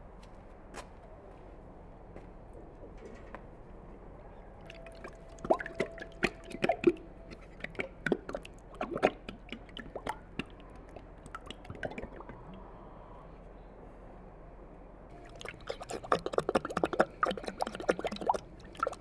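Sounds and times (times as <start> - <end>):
yogurt plopping into a pot: 4.6 - 12.6.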